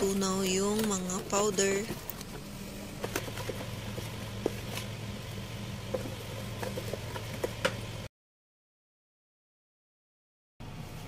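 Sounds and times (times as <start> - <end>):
low hum: 0.0 - 8.1
spatula stirring in bowl: 3.0 - 7.9.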